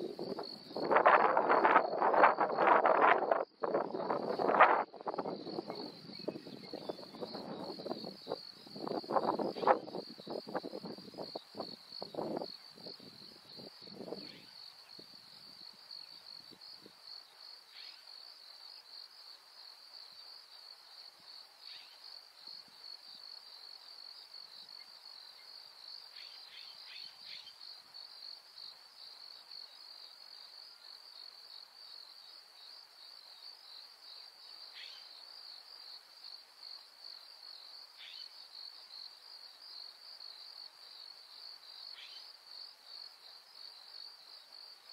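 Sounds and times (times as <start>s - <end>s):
insect chorus trilling: 0.0s - 44.9s
faint bird chirps: 14.2s - 14.6s, 17.7s - 18.2s, 34.6s - 35.2s, 38.0s - 38.4s, 41.9s - 42.3s.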